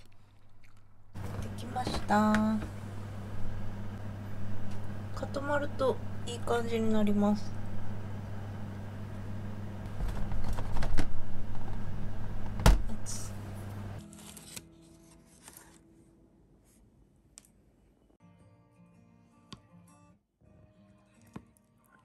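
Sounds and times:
steady low hum: 0.1s - 14.0s.

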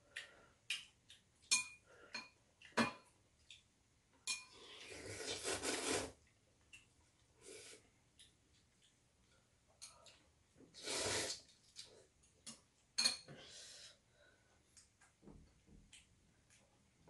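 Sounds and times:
slurping noodles: 4.6s - 6.2s, 10.7s - 11.5s.

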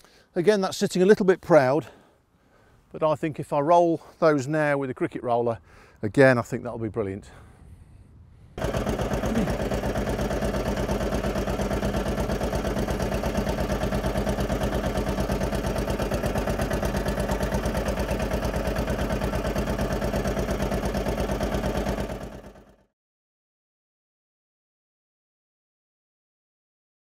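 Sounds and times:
small petrol engine running: 8.6s - 22.9s.

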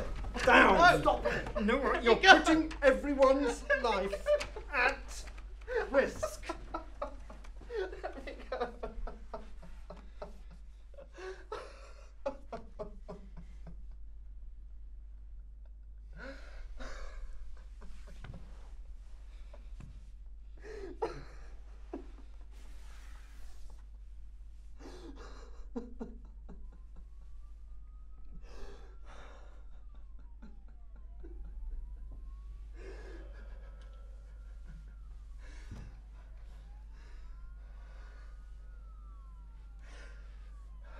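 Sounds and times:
faint police siren wailing: 0.0s - 40.9s
person crying breaths: 16.1s - 17.4s, 28.4s - 29.8s, 32.8s - 34.5s.

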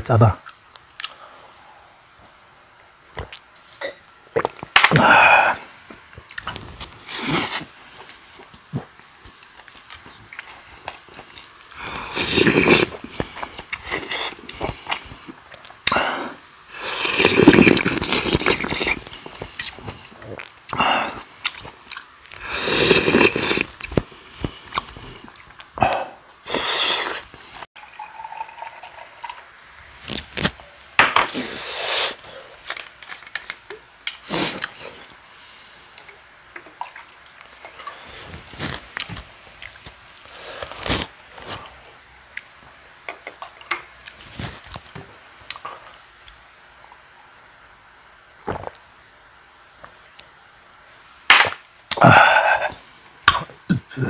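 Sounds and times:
man chewing and slurping: 6.2s - 27.6s
water poured into glass: 27.8s - 29.5s.

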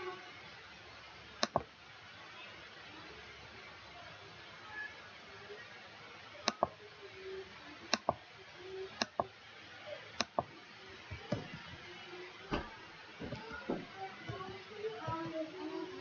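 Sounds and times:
computer mouse clicking: 1.4s - 1.7s, 6.4s - 6.8s, 7.9s - 8.2s, 9.0s - 9.3s, 10.2s - 10.5s.

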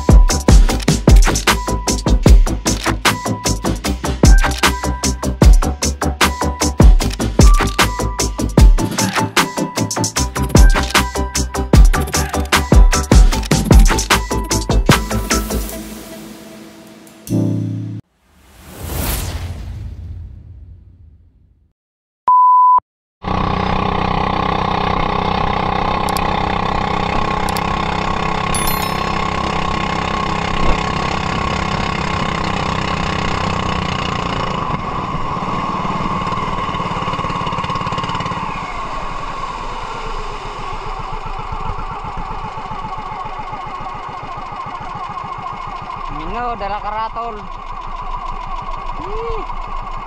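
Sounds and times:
loud pure beep: 22.3s - 22.8s
boat engine running: 23.2s - 50.0s.

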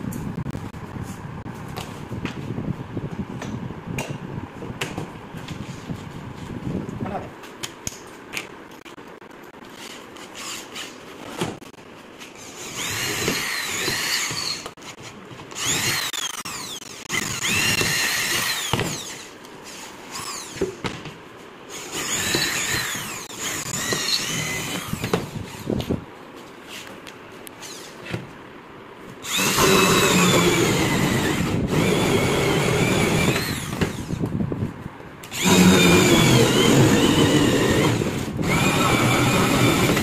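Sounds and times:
electric drill boring wood: 12.5s - 14.7s, 15.6s - 19.3s, 21.7s - 25.4s, 29.2s - 34.3s, 35.3s - 40.0s.

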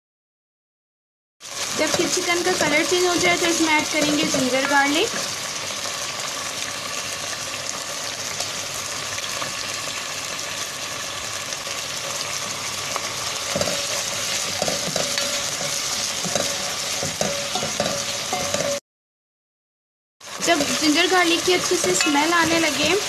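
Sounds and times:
chicken and onion sizzling in oil: 1.4s - 18.8s, 20.2s - 23.0s
spoon scraping and knocking pan: 1.8s - 5.4s, 13.5s - 18.8s, 20.5s - 23.0s.

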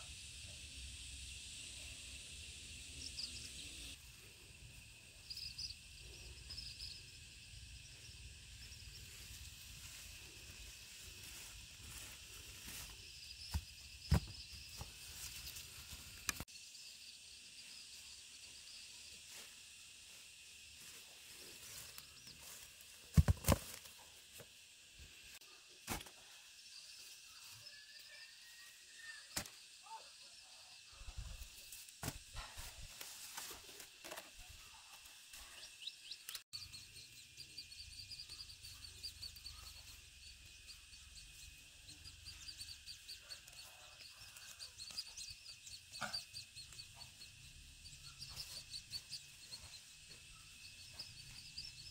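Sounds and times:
faint chirping: 0.0s - 19.5s, 34.4s - 51.9s
steady high-pitched hiss: 0.0s - 51.9s.

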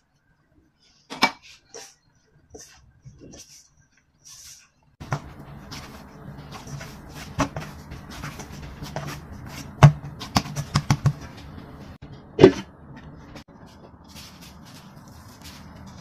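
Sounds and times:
hands kneading dough: 0.8s - 16.0s
steady low hum: 5.0s - 16.0s.

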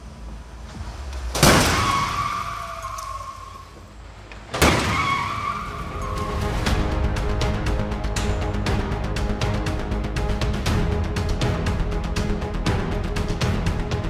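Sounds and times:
crash barrier slamming into car: 1.4s - 3.2s, 4.6s - 5.6s.

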